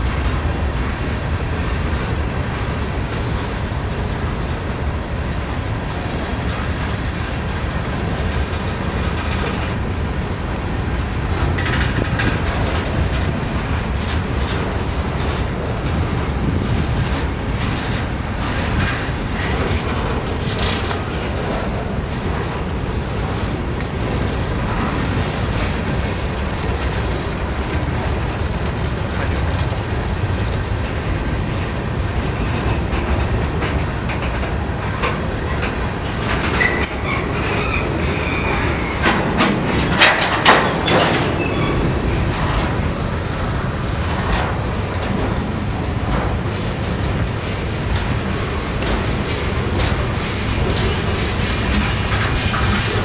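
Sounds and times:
freight train rumbling past: 0:00.0 - 0:53.0
wheels clattering over rail joints: 0:00.0 - 0:53.0
high wheel squeal: 0:36.6 - 0:39.2, 0:40.8 - 0:41.9.

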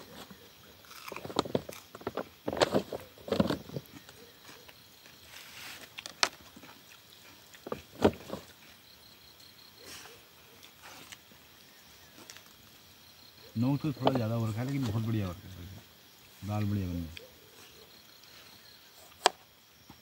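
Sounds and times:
camp plates and pots clinking: 0:00.0 - 0:08.9, 0:13.4 - 0:15.4.

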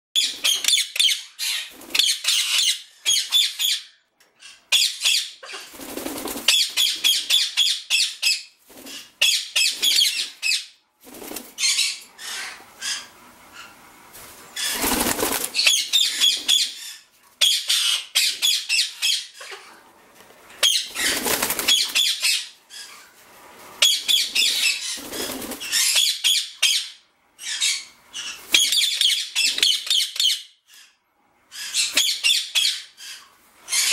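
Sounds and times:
parakeets chattering: 0:00.2 - 0:10.7, 0:11.5 - 0:13.9, 0:14.5 - 0:19.8, 0:20.6 - 0:23.2
bird wing flaps: 0:05.7 - 0:06.6, 0:11.0 - 0:11.6, 0:14.2 - 0:15.8, 0:21.0 - 0:22.0, 0:25.0 - 0:25.7.

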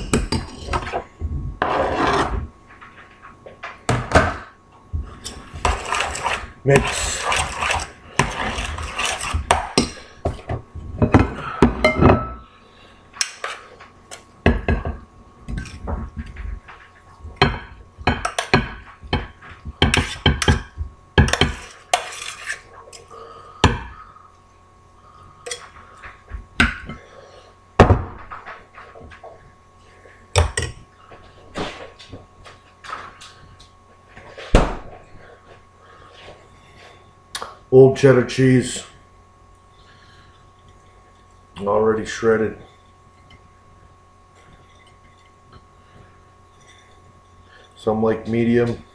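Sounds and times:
spoon scraping steel pot: 0:05.6 - 0:09.8.

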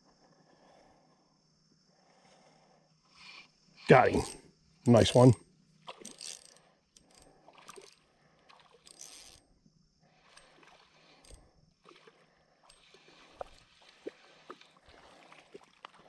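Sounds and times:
fishing reel clicking: 0:05.9 - 0:09.5, 0:10.3 - 0:12.1
water splashing: 0:10.4 - 0:16.0.

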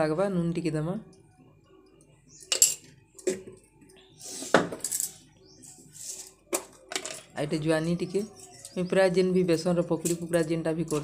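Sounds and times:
spoon clinking on glass and metal: 0:02.4 - 0:02.9.

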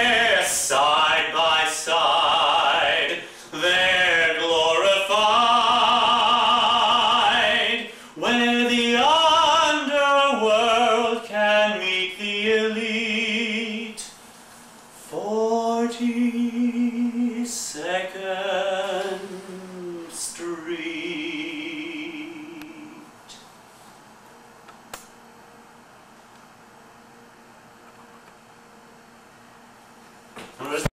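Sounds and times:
man singing unaccompanied: 0:00.0 - 0:14.2, 0:15.0 - 0:23.4.

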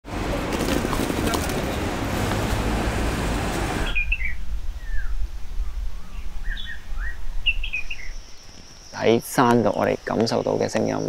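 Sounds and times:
city street noise: 0:00.0 - 0:04.7
birds chirping: 0:00.1 - 0:11.0.

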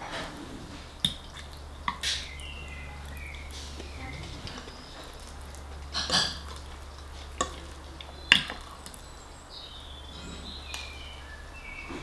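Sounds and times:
cutlery scraping on a plate: 0:05.9 - 0:06.6, 0:10.1 - 0:10.6.

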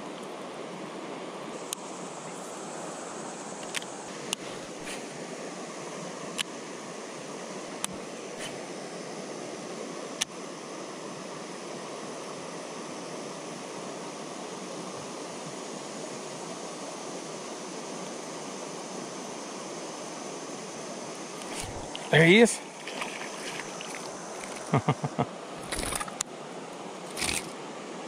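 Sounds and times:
river water rushing: 0:21.2 - 0:28.0
sharp clicks: 0:25.6 - 0:26.3, 0:27.1 - 0:27.5.

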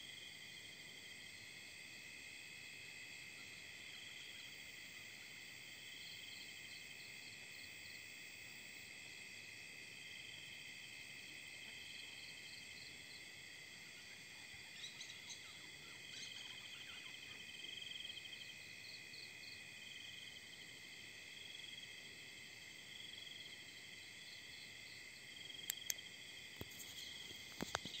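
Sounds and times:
crickets trilling: 0:00.0 - 0:28.0
sharp clicks: 0:25.6 - 0:26.0.

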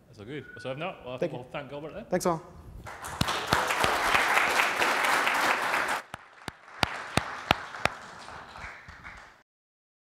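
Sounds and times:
audience applauding: 0:02.9 - 0:09.4
scattered single claps: 0:02.9 - 0:09.4.

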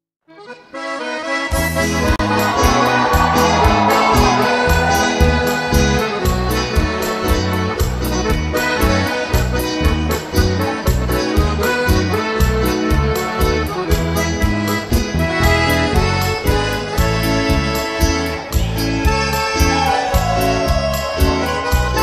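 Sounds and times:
accordion folk music: 0:00.3 - 0:22.0.

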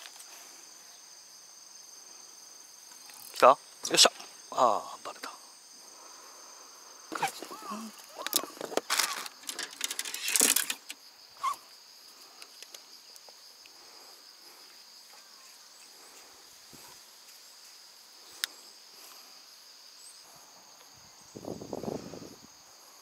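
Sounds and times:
insects chirring: 0:00.0 - 0:23.0
fishing rods clattering: 0:08.1 - 0:11.0.

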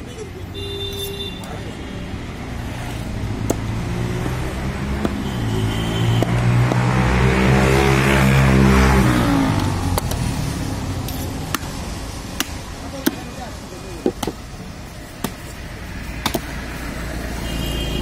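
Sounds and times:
vehicle engine passing by: 0:02.4 - 0:11.1.

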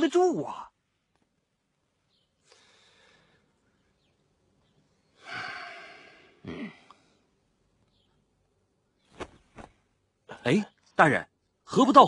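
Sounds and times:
man sighing: 0:05.2 - 0:07.2.

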